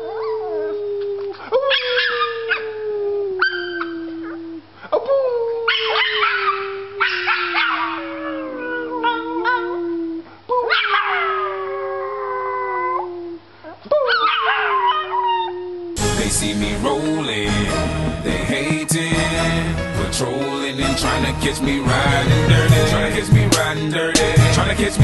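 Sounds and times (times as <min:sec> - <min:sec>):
small dog howling: 0:00.0 - 0:16.0.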